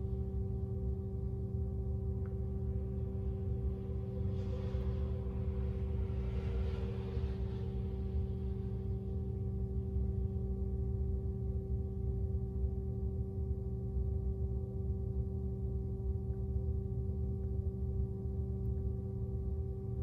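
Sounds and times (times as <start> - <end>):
low rumble: 0.0 - 11.7.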